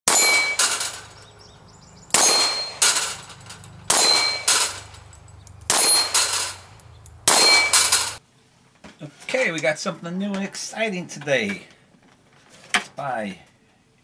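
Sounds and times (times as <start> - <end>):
steel plate clanging: 0.1 - 8.2
pistol shots: 2.1 - 5.0, 5.7 - 8.2.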